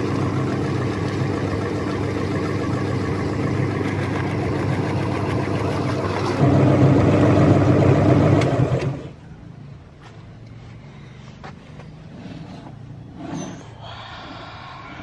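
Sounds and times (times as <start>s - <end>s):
meat grinder grinding: 0.0s - 8.8s.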